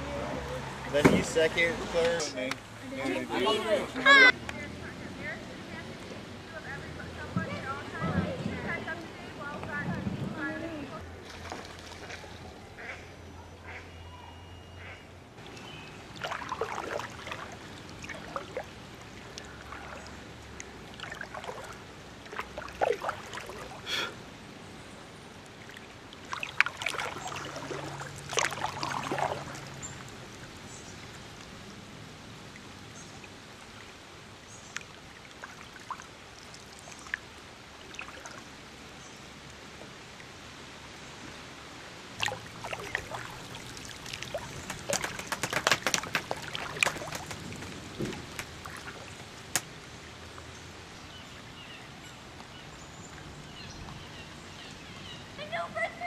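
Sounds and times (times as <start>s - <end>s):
kayak paddle splashing in water: 11.2s - 12.3s, 15.4s - 24.1s, 25.5s - 30.7s, 34.6s - 38.6s, 42.2s - 49.9s
water dripping off paddle: 15.4s - 24.0s, 25.4s - 31.5s, 42.2s - 50.5s.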